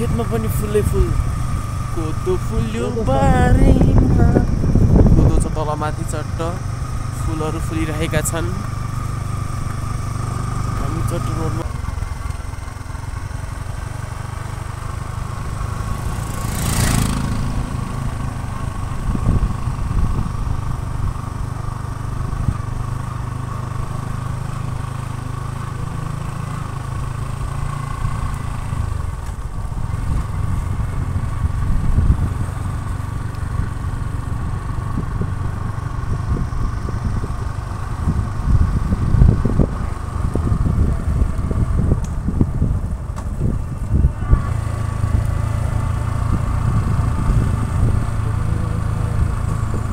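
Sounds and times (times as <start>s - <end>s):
motorcycle engine running: 0.0s - 49.9s
wind noise on microphone: 2.5s - 6.0s, 16.9s - 21.6s, 29.4s - 49.9s.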